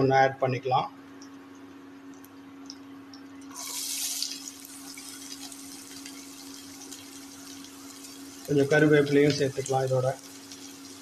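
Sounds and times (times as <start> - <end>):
cooktop hum: 0.0 - 11.0
onion sizzling in hot oil: 3.5 - 11.0.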